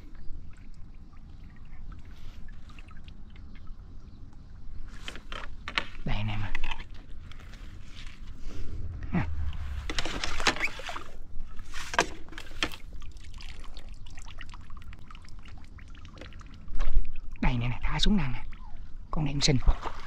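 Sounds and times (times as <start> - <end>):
water splashing and trickling: 0.0 - 20.0
knocks and rustles of handling: 9.8 - 12.8.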